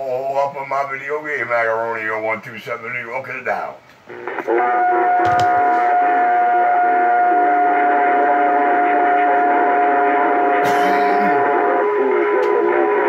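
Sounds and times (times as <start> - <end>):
steady high radio tone: 4.1 - 13.0.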